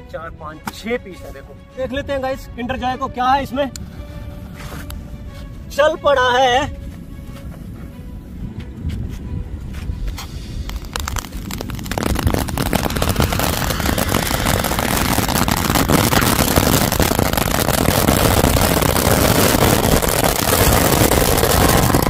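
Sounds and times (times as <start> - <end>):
firecracker roaring hiss and crackling: 9.9 - 22.0.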